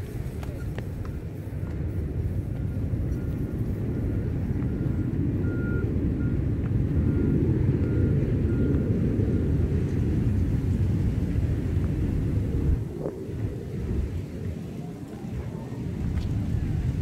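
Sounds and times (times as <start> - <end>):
low rumble: 1.1 - 17.0
reversing alarm beeping: 2.5 - 6.4, 7.0 - 9.6.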